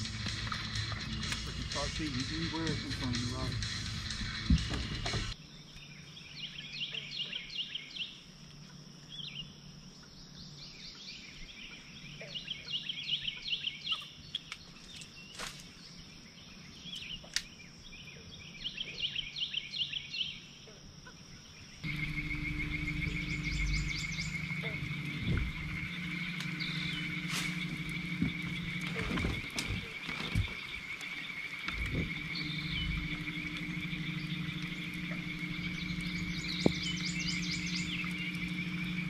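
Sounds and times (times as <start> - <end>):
low hum: 0.0 - 5.4, 21.8 - 39.0
fast pulsing trill: 21.8 - 30.0, 31.5 - 39.0
faint high whine: 21.8 - 39.0.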